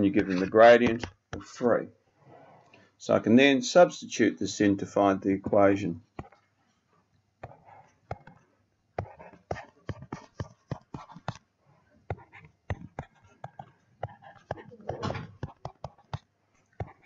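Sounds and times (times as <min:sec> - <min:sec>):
stylus tapping on tablet: 0:00.8 - 0:01.5, 0:07.4 - 0:08.4, 0:09.0 - 0:11.5, 0:12.1 - 0:17.0
stylus scratching strokes: 0:07.4 - 0:08.4, 0:09.0 - 0:16.2, 0:16.8 - 0:17.0.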